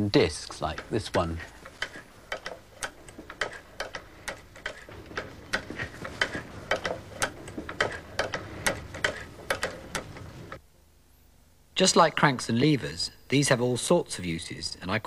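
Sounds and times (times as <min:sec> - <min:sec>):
sewing machine clicking and knocking: 0:00.4 - 0:10.6.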